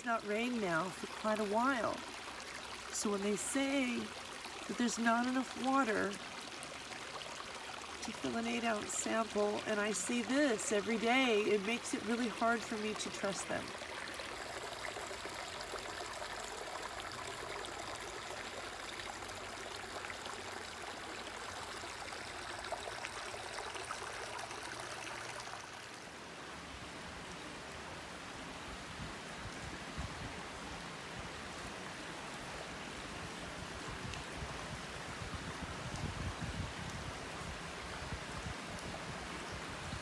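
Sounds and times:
creek water trickling over rocks: 0.0s - 40.0s.

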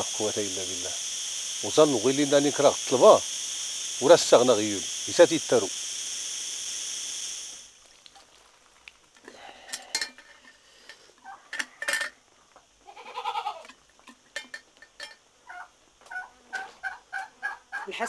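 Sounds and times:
insects chirring: 0.0s - 18.0s
pots knocking and clinking: 9.7s - 12.2s, 13.7s - 15.2s
goat bleating: 12.8s - 13.7s.

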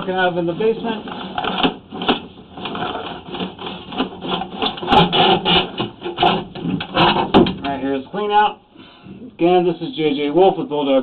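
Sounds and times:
cable rasping against pipe: 0.6s - 7.5s
sharp knocks: 4.0s - 7.8s.

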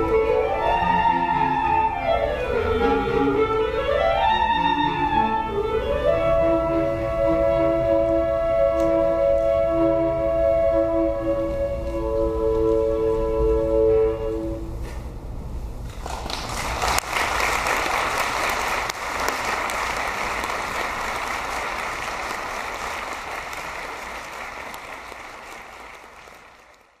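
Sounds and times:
clarinet ensemble chord: 0.0s - 15.0s
audience applause: 15.9s - 27.0s.

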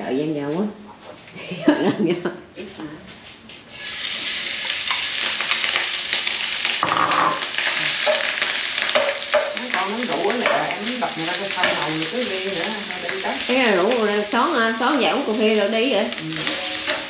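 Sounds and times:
rice sizzling in hot oil: 3.7s - 17.0s
spoon scraping a pan: 6.8s - 14.3s, 16.3s - 17.0s.

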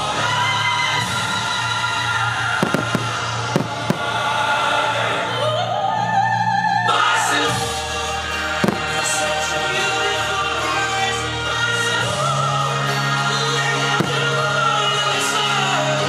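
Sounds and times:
choral operatic music: 0.0s - 16.0s
fireworks banging: 2.4s - 4.6s, 8.5s - 9.6s, 13.8s - 15.1s.

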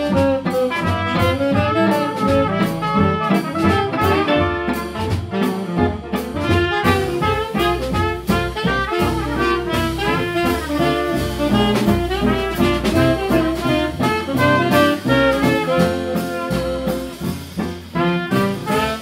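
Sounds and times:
swing jazz band playing: 0.0s - 19.0s.

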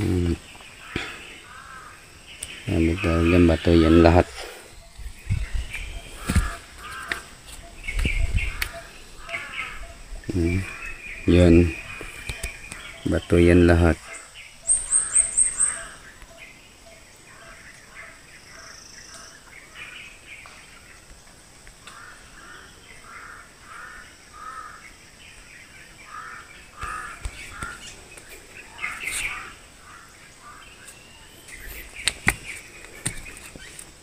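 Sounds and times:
bird calling repeatedly: 0.0s - 20.0s, 26.0s - 33.8s.

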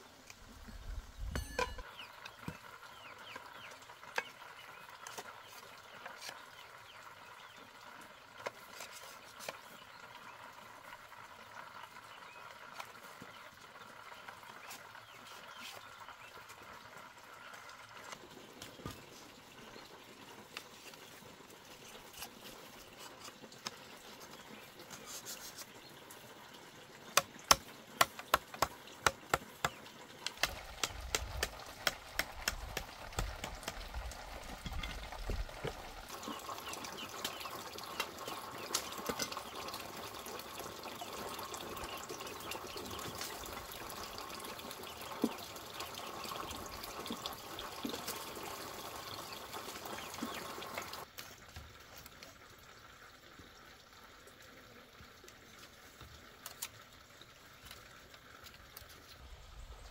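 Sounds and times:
knife chopping bamboo: 27.2s - 29.7s, 30.3s - 33.8s.

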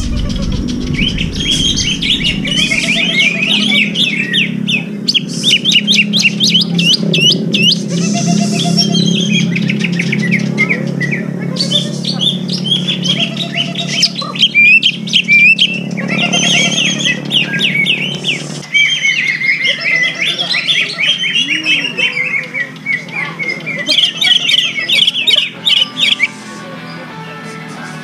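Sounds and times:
low steady hum: 0.0s - 18.7s
bird chirping and whistling: 0.0s - 26.5s.

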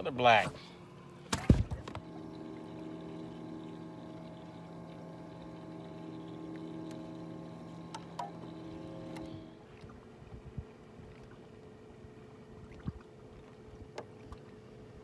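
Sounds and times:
electric motor humming: 0.8s - 9.6s.

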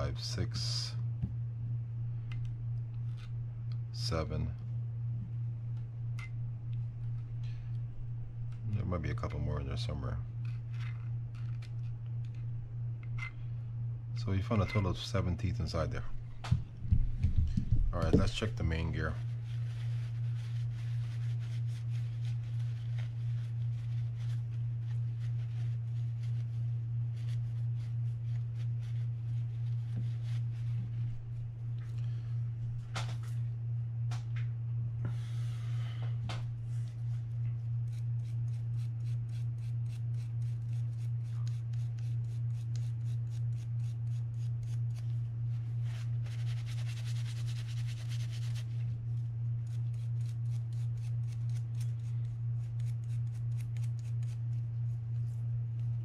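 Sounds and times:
low throbbing hum: 0.0s - 56.0s
paper towel rustling and rubbing: 17.0s - 33.5s, 36.5s - 56.0s.

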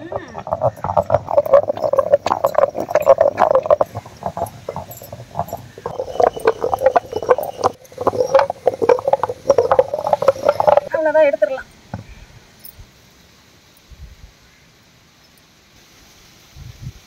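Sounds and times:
stone grinder knocking and scraping: 0.0s - 11.0s.

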